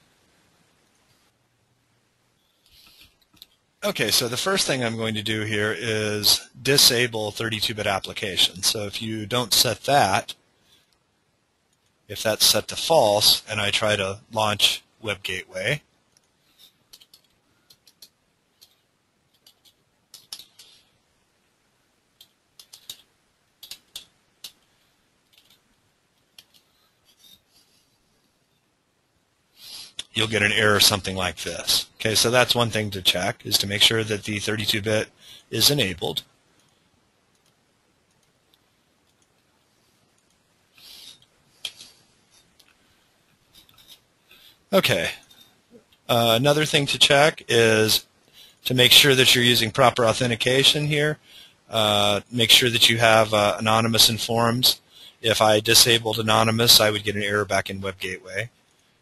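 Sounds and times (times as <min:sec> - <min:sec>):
computer mouse clicks: 0:16.2 - 0:20.8, 0:22.2 - 0:24.7, 0:25.3 - 0:25.6, 0:26.3 - 0:27.4, 0:36.6 - 0:39.4.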